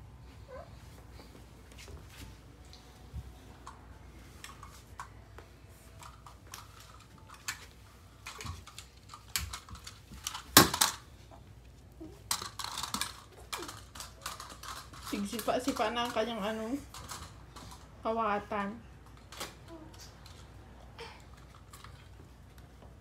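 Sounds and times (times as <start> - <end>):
plastic toy clicks and clatter: 8.2 - 11.0, 12.3 - 17.9.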